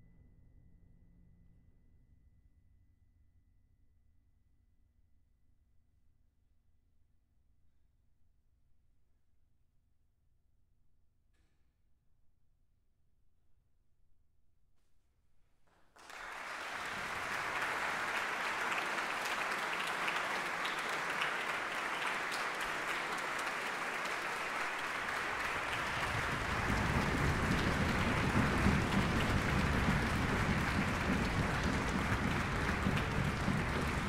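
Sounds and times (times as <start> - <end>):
audience applause: 16.0 - 34.0.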